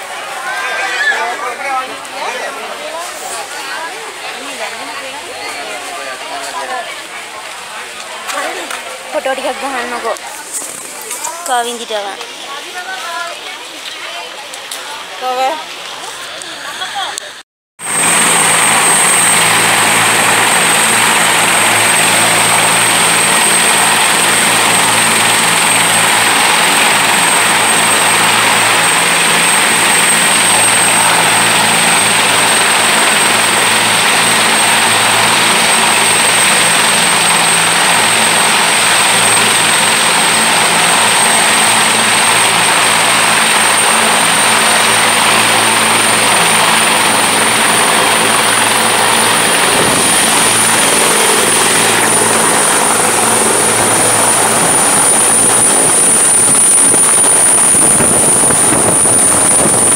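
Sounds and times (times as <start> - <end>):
helicopter low hum: 14.4 - 59.9
helicopter turbine whine: 15.0 - 59.9.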